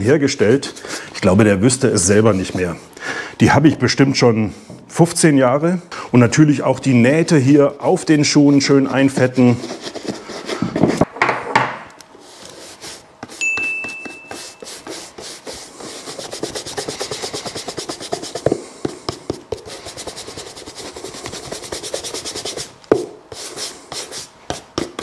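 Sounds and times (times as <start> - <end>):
shoe brush scrubbing leather: 14.2 - 25.0.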